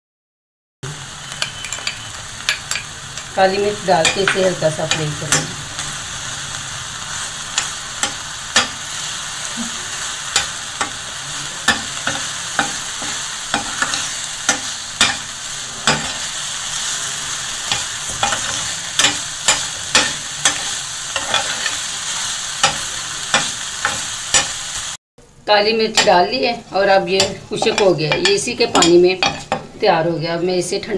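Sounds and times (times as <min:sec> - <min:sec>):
chicken sizzling in frying pan: 0:00.8 - 0:25.0
spoon scraping against pan: 0:07.0 - 0:24.6, 0:27.1 - 0:29.8.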